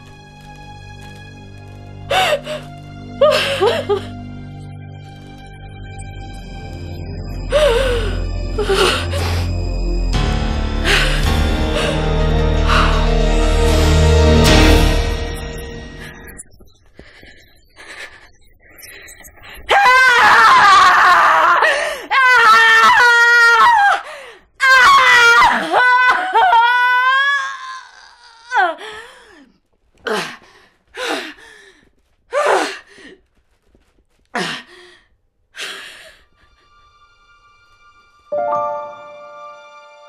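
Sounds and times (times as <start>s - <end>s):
woman screaming: 19.7s - 24.0s.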